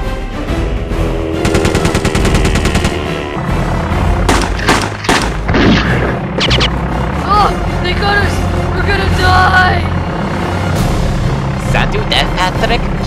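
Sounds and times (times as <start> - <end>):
background music: 0.0 - 13.0
machine-gun fire: 1.4 - 3.1, 4.2 - 6.0
single gunshots: 4.3 - 6.2.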